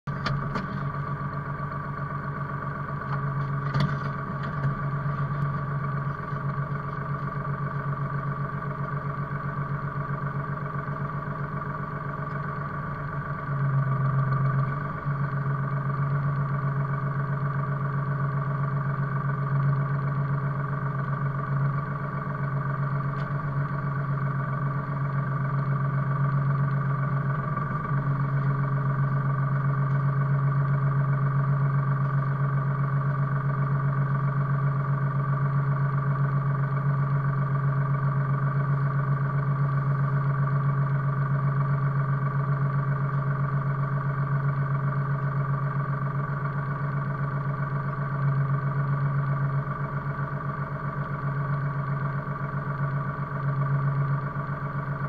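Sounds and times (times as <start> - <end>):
diesel engine running: 0.0 - 55.0
high whine: 0.1 - 34.8.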